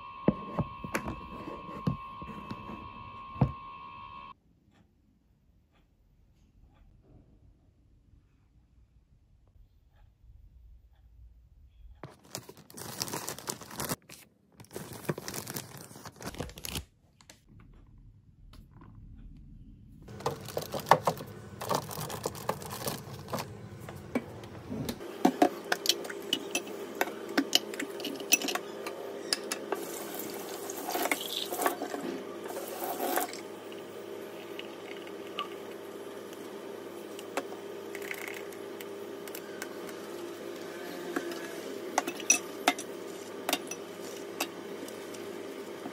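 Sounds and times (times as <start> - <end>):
plastic bottles clattering in sink: 20.1 - 23.5.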